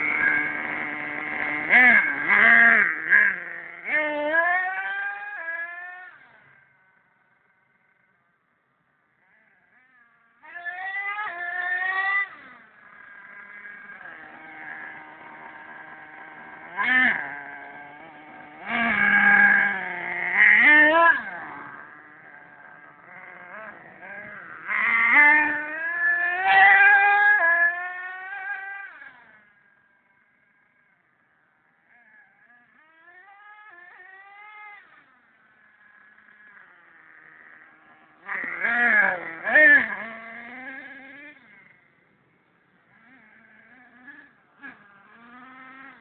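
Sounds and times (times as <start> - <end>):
nitro engine revving: 0.0 - 8.1, 9.2 - 46.0.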